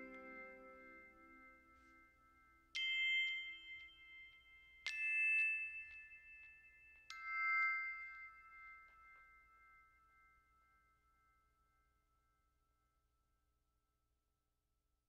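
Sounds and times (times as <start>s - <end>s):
bell-like chime notes: 0.0s - 10.7s.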